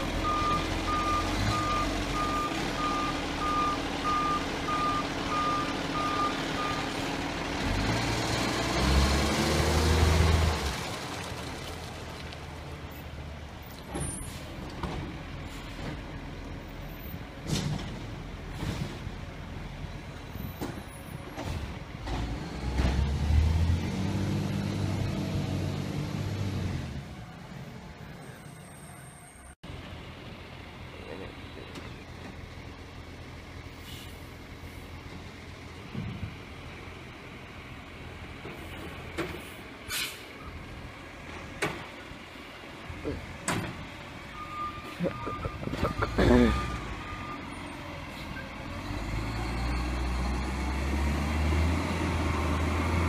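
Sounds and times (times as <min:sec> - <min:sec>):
diesel truck engine revving: 0:00.0 - 0:27.5, 0:29.7 - 0:53.0
reversing alarm beeping: 0:00.2 - 0:06.8, 0:44.3 - 0:47.6
short clicks or hisses: 0:39.9 - 0:40.3.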